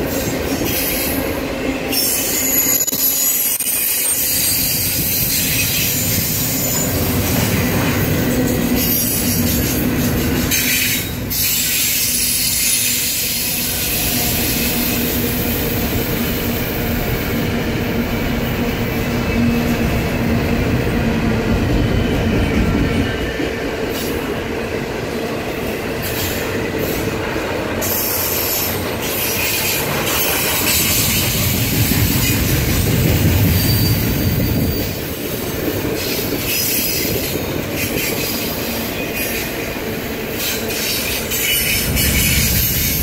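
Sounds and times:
freight train wheels rumbling on rails: 0.0 - 43.0
high wheel squeal: 1.9 - 7.2, 32.1 - 39.6.

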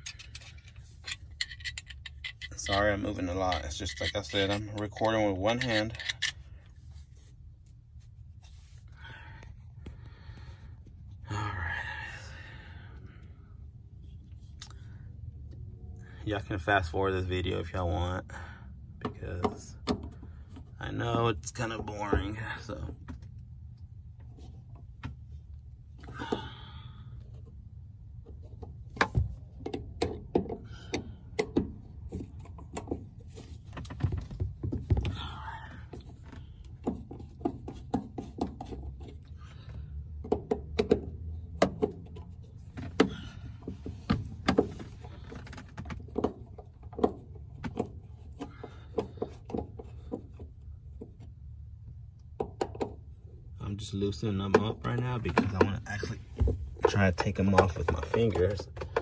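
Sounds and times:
screwdriver clicking and scraping: 0.0 - 6.5.

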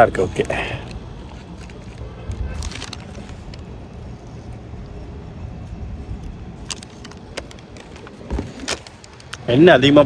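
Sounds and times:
traffic rumble: 0.0 - 10.0.

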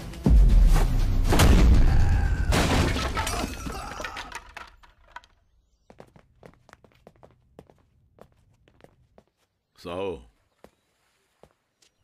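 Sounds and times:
crash of something breaking: 1.2 - 5.0
fragments crackling and scattering: 2.5 - 5.3.

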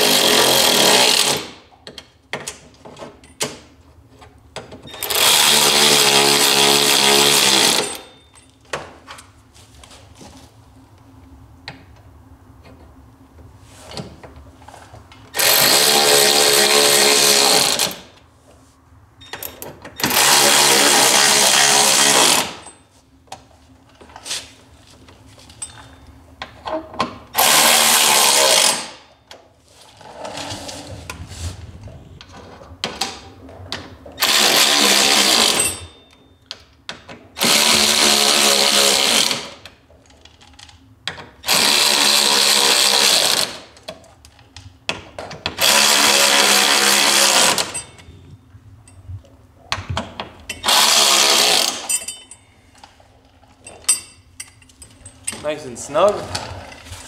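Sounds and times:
electric ratchet spinning: 0.0 - 1.6, 5.0 - 8.1, 15.3 - 18.1, 20.0 - 22.7, 27.4 - 29.0, 34.2 - 36.0, 37.4 - 39.5, 41.4 - 43.7, 45.6 - 47.9, 50.6 - 52.0.

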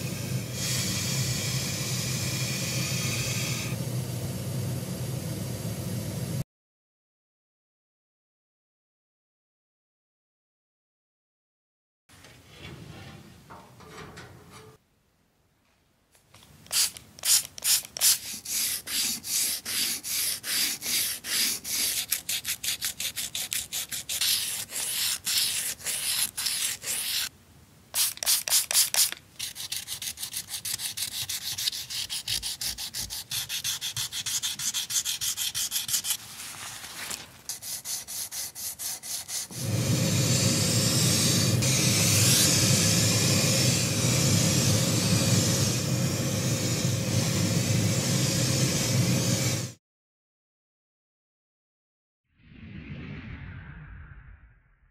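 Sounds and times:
compressed air spraying: 0.0 - 3.8, 39.4 - 49.7
brush scrubbing metal ashtray: 16.7 - 27.3, 28.0 - 36.4, 37.5 - 39.6.

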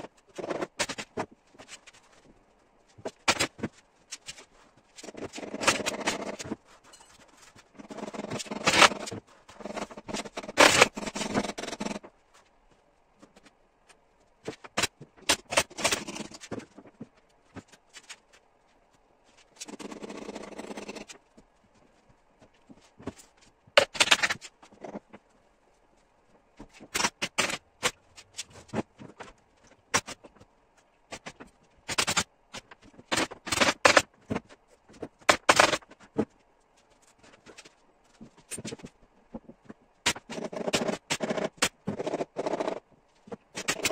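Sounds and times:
rasping noise: 4.4 - 12.1.

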